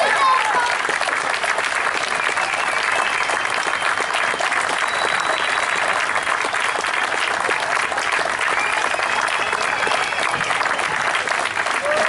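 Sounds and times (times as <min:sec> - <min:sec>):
audience applauding: 0:00.0 - 0:12.0
high whistle: 0:02.1 - 0:06.9, 0:08.5 - 0:10.5.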